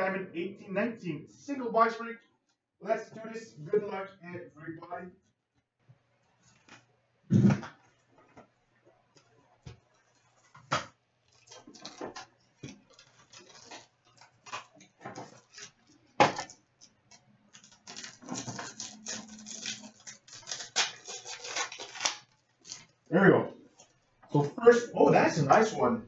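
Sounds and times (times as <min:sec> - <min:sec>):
cardboard and wrapper rustling: 0:09.4 - 0:16.5, 0:17.5 - 0:22.9.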